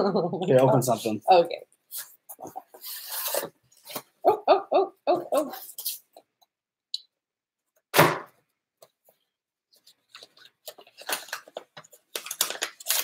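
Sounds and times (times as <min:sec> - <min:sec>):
paper rustling: 0:09.7 - 0:13.0.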